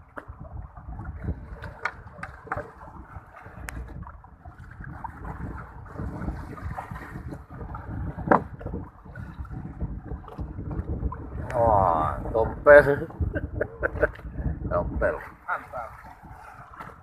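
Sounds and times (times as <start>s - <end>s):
knocks and clicks against hull: 0.0s - 11.6s, 16.0s - 17.0s
water slapping against boat: 0.0s - 17.0s
wind buffeting microphone: 0.0s - 17.0s.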